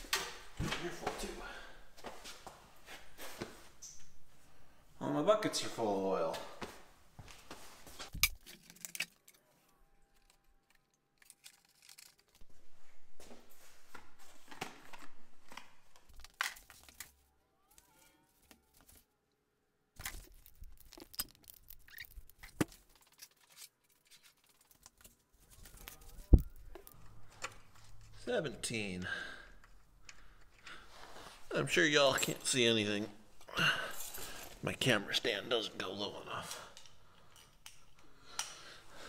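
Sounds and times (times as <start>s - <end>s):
handling clicks and rustling: 7.9s - 12.5s, 20.0s - 29.0s.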